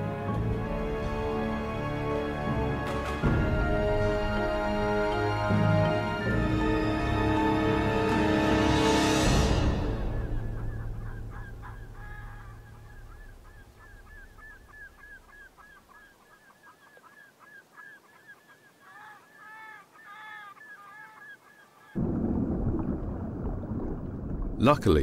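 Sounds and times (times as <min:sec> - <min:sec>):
music: 0:00.0 - 0:15.0
flock of birds calling: 0:09.8 - 0:22.0.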